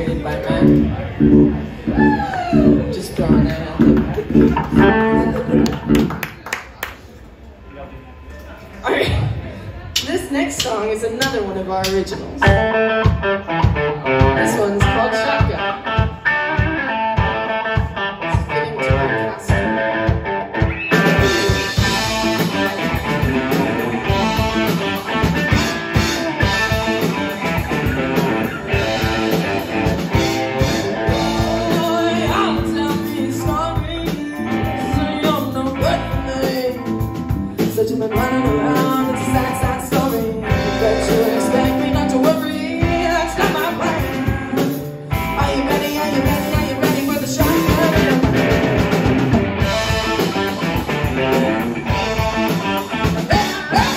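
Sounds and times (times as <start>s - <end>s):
drum kit: 0.0s - 6.3s, 9.0s - 53.9s
electric guitars: 0.0s - 6.5s, 10.5s - 53.9s
woman singing: 31.2s - 37.0s, 37.6s - 48.4s.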